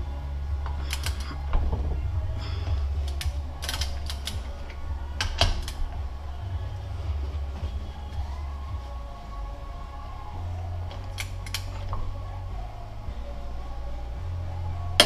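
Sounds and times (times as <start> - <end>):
low hum: 0.0 - 15.0
ratchet wrench clicking: 0.6 - 1.4, 3.0 - 4.5, 11.1 - 11.7.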